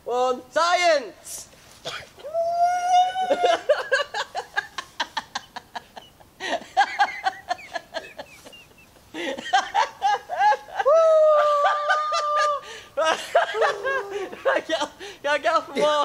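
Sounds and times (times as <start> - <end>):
long held shout: 2.2 - 3.8, 10.7 - 12.7, 13.5 - 14.5
men laughing: 2.2 - 16.0.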